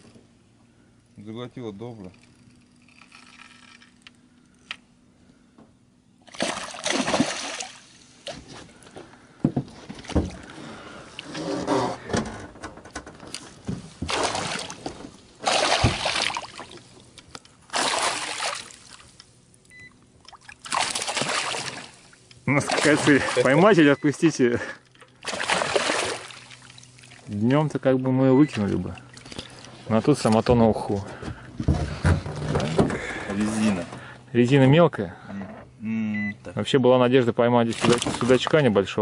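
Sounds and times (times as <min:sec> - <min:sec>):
fish splashing at water surface: 0:06.3 - 0:08.0, 0:14.1 - 0:14.8, 0:15.4 - 0:16.9, 0:17.7 - 0:19.2, 0:20.2 - 0:23.5, 0:25.2 - 0:27.3.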